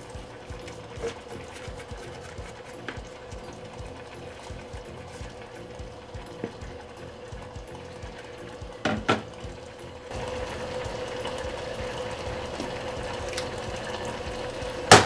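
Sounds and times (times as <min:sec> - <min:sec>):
utensil scraping saucepan: 0:00.0 - 0:09.5
steady hum: 0:00.0 - 0:15.0.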